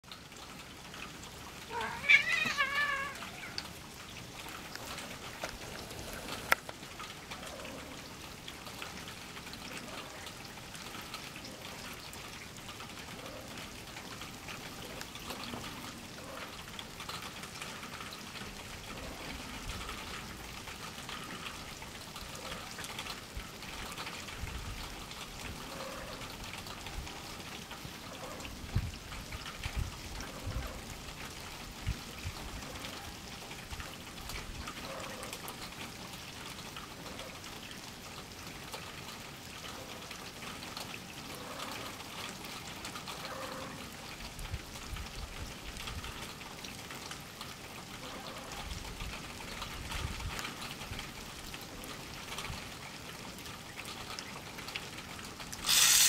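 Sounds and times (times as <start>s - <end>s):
faint outdoor noise: 0.0s - 56.0s
cat meowing: 1.7s - 3.7s.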